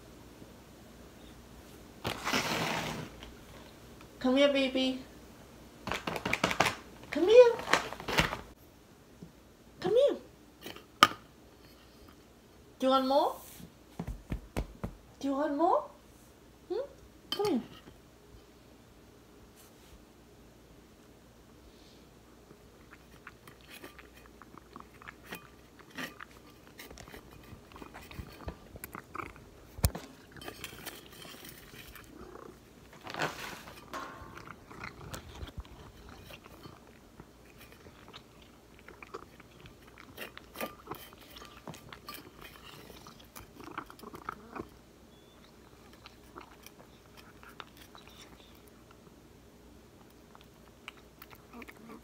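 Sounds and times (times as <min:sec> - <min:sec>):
cat chewing food: 0:22.4 - 0:52.0.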